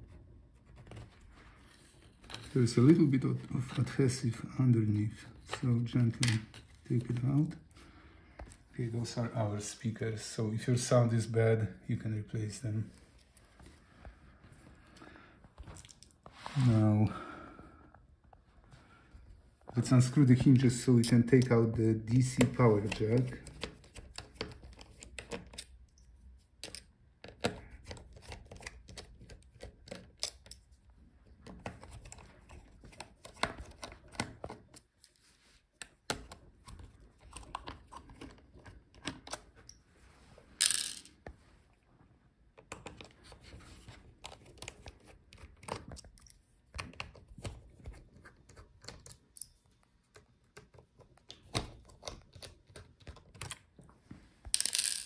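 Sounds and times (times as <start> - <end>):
plastic chassis being handled: 0.6 - 4.3, 20.0 - 25.8, 54.5 - 55.0.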